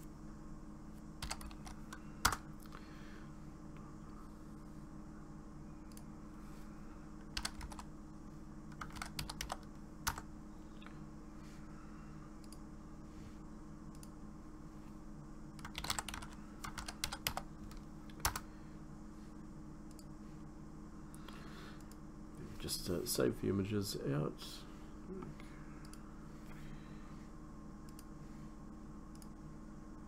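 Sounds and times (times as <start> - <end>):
steady low hum: 0.0 - 30.0
keyboard typing clicks: 1.2 - 2.4, 7.3 - 7.9, 8.7 - 10.9, 15.6 - 18.4, 29.1 - 29.4.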